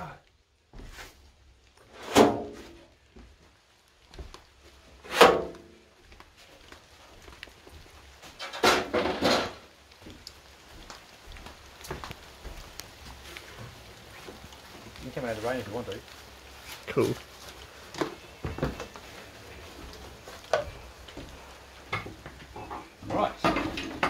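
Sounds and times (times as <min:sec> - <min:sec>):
wooden clatter: 0:08.3 - 0:10.3, 0:17.9 - 0:19.2, 0:19.9 - 0:24.0
wooden creaks: 0:17.6 - 0:24.0.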